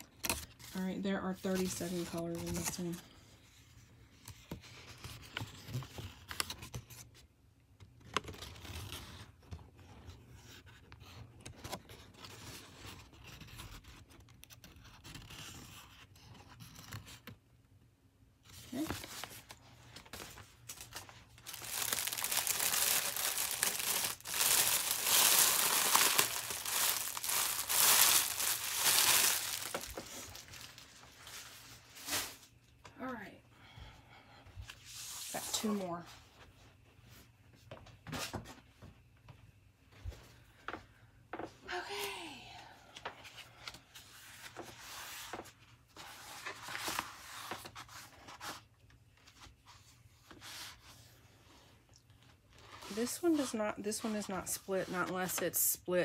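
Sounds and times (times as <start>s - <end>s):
paper and packaging crinkling: 18.5s - 32.5s.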